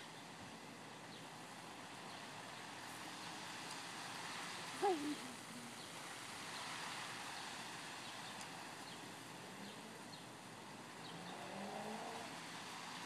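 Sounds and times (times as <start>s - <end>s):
faint low hum: 0.0s - 13.0s
faint bird chirps: 4.2s - 12.3s.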